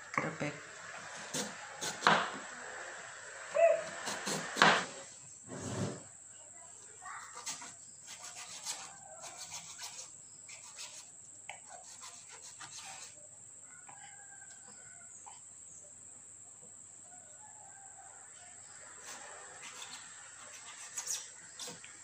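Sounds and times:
knife slicing on cutting board: 1.2 - 2.3, 3.8 - 5.0
faint chicken calls: 1.3 - 5.0, 8.3 - 10.1, 12.8 - 16.1, 17.0 - 22.0.

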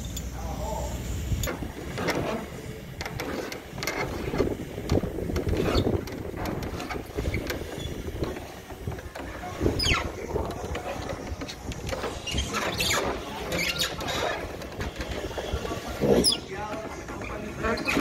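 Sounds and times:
knocks and clatter on wood: 3.0 - 18.0
wind rumble on microphone: 4.0 - 12.6
short falling squeak: 9.8 - 10.3, 12.1 - 16.5.

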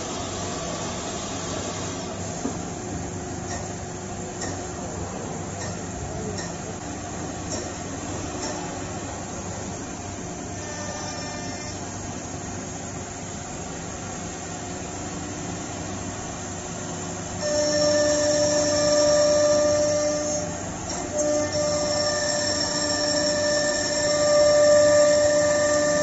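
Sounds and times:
cnc router mechanical noise: 7.5 - 12.2, 17.1 - 26.0.

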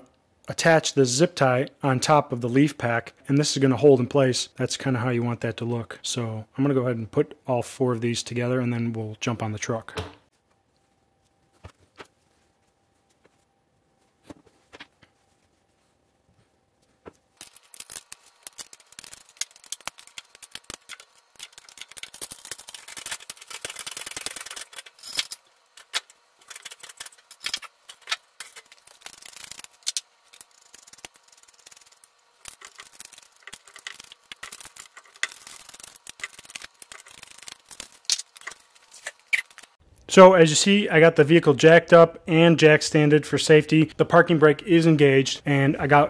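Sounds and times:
rubber pads rustling and rubbing: 10.3 - 24.8.

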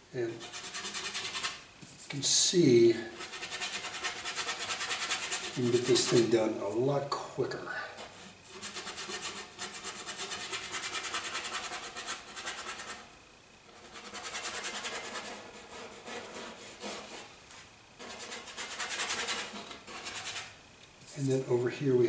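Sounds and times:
brush scrubbing paint: 0.3 - 2.4, 3.1 - 6.8, 8.0 - 13.1, 13.7 - 21.4.

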